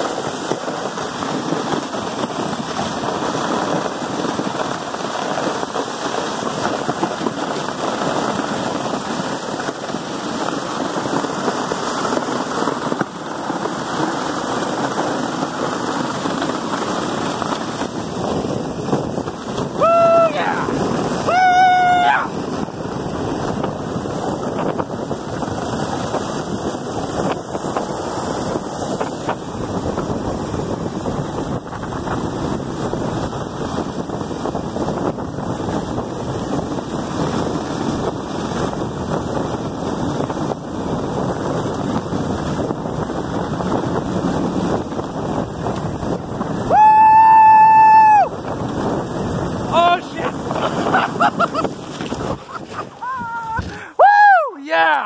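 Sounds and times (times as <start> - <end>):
sled sliding over snow: 0.0 - 55.0
wind buffeting microphone: 0.0 - 55.0
person whooping: 19.8 - 22.4, 46.6 - 48.4, 49.7 - 51.6, 53.0 - 55.0.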